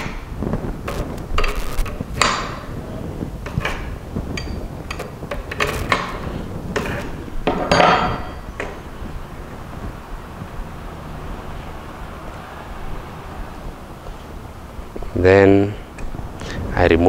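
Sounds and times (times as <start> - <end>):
metal rattle: 3.4 - 8.9.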